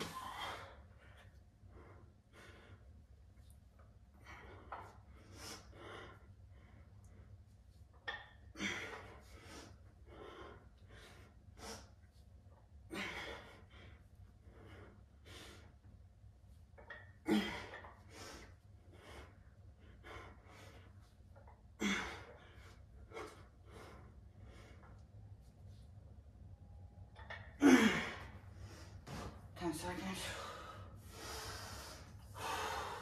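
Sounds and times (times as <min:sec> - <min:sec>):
man breathing hard: 0:00.0 - 0:03.0, 0:30.3 - 0:33.0.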